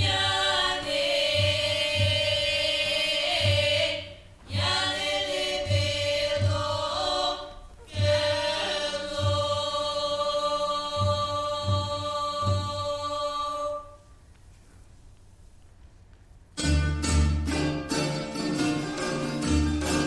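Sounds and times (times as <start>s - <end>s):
low drumbeat: 0.0s - 13.1s
choir singing in harmony: 0.0s - 14.0s.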